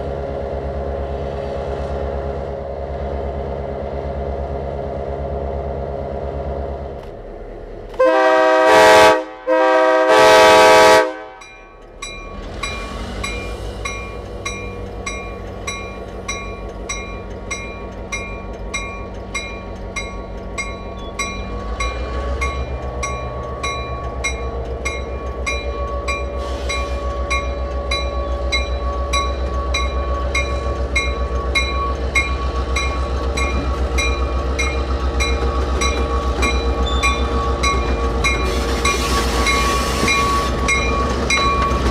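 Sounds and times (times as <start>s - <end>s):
locomotive horn blasts: 8.0s - 11.5s
locomotive bell ringing: 11.3s - 41.9s.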